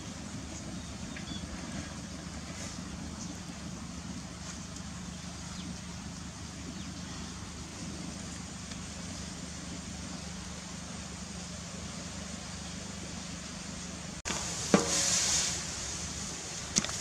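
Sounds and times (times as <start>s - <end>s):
water boiling in a wok: 0.0s - 17.0s
wood fire burning: 0.0s - 17.0s
sharp ringing knock: 14.8s - 15.1s.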